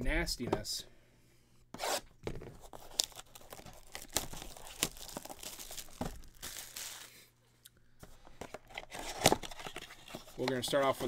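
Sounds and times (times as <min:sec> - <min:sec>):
plastic wrap and cardboard crinkling: 0:02.6 - 0:07.3.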